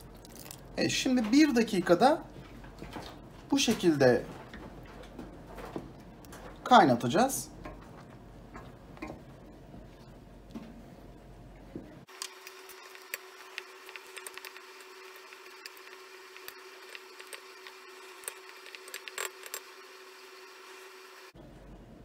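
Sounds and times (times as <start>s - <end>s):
faint steady hum: 0.0s - 22.0s
jam bubbling in a pot: 12.0s - 21.3s.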